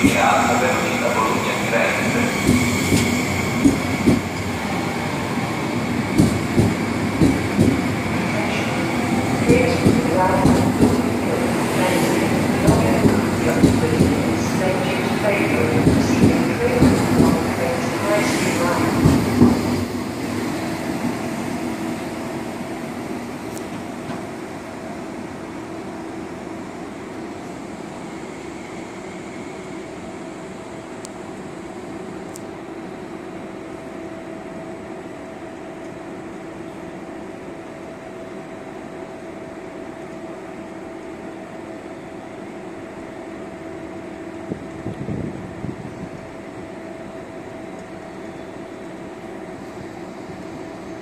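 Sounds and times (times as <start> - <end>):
train rail noise: 0.0 - 51.0.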